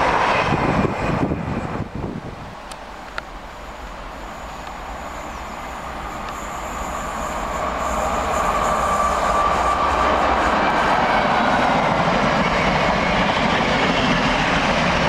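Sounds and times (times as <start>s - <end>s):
freight train rumble: 0.0s - 15.0s
faint high whine: 3.2s - 10.7s.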